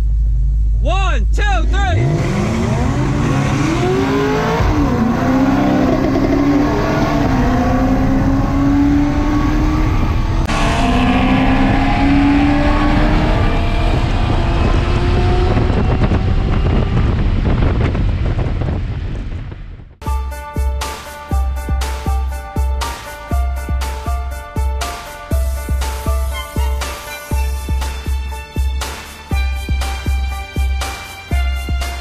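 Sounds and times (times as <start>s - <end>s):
car engine at full throttle: 1.6s - 20.0s.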